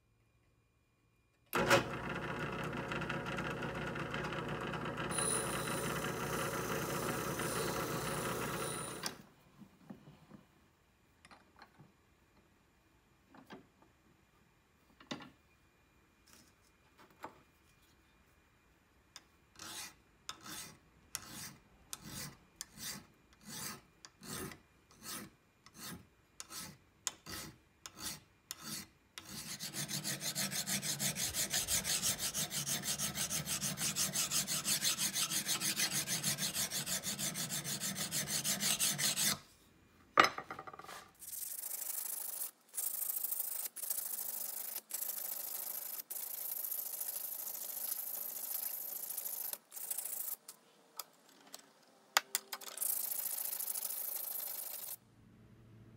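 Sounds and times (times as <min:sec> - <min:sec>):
hand file rasping on steel: 0:19.6 - 0:39.4
sandpaper rubbing on steel: 0:25.0 - 0:39.4.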